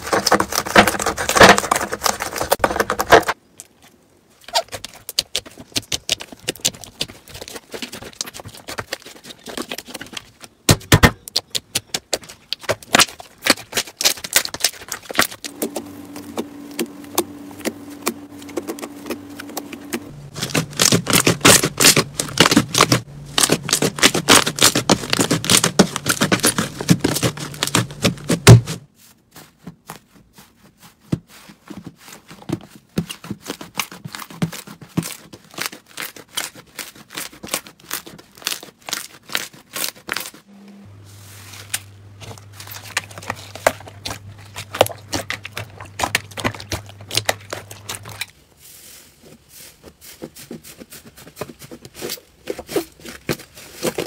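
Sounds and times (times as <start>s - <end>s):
slime clicking and crackling: 16.8s - 28.5s.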